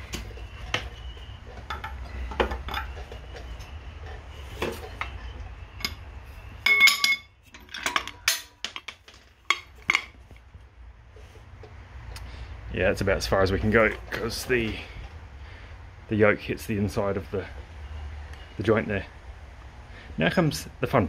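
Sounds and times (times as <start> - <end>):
metal clinks and knocks: 0.1 - 3.5, 5.8 - 10.4
ringing metal clank: 6.6 - 8.6.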